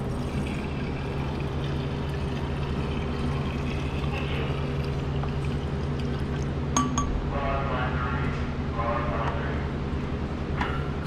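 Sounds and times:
liquid trickling into metal canister: 0.0 - 6.6
low machine hum: 0.0 - 11.0.

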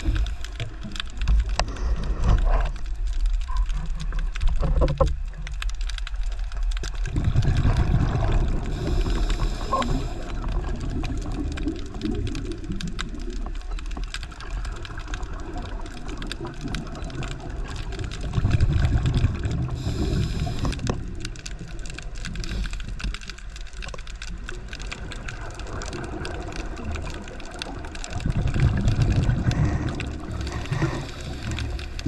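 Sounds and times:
crackle of fine clicks: 0.0 - 32.0
exhaled bubbles rumbling: 0.0 - 32.0
regulator inhalation hiss: 8.7 - 10.4, 19.7 - 20.9.

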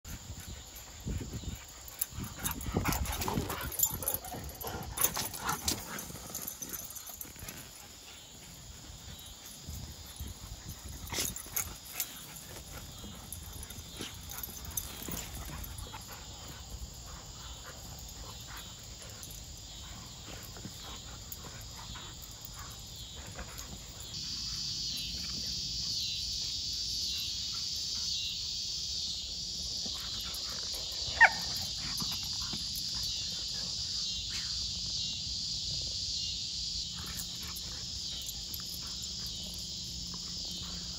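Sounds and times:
insect chorus: 0.0 - 40.9
dogs scuffling and thumping: 0.2 - 24.2.

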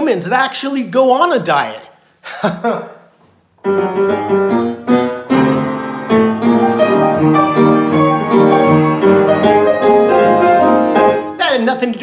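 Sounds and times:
piano playing: 3.6 - 12.0.

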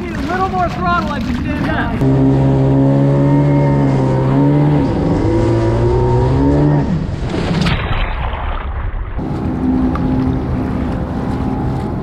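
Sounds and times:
jet ski engine running: 1.4 - 7.1, 9.2 - 12.0.

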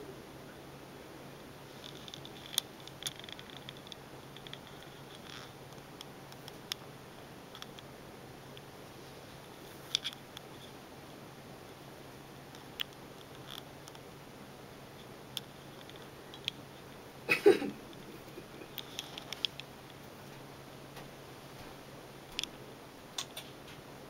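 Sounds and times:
faint low hum: 0.0 - 24.0
small sharp clicks: 23.2 - 23.8.

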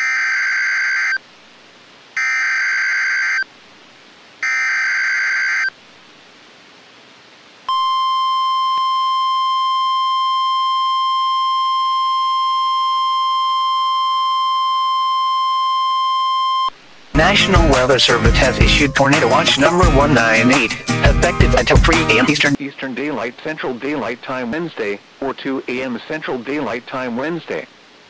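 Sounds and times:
steady warning alarm tone: 7.7 - 18.0.

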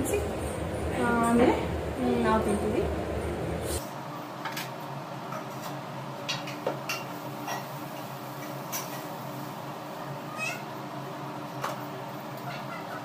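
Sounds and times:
steady low hum: 0.0 - 3.8.

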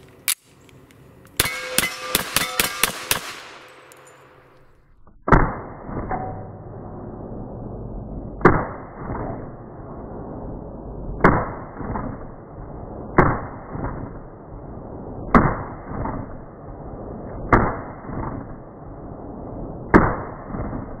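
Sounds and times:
pistol gunshots: 1.4 - 4.5.

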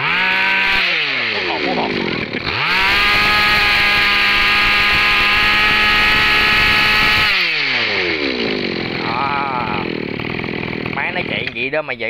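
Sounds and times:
brush cutter engine revving: 0.0 - 11.7.

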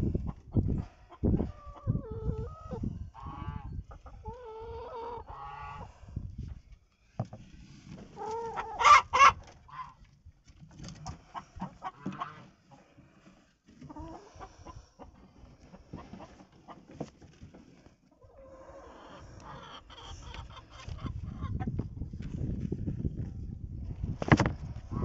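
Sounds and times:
hens clucking: 0.0 - 6.1, 8.1 - 10.1, 11.0 - 13.0, 13.6 - 17.2, 18.1 - 22.1
loud hen squawks: 1.5 - 5.9, 8.2 - 10.0, 11.7 - 12.5, 18.3 - 21.6.

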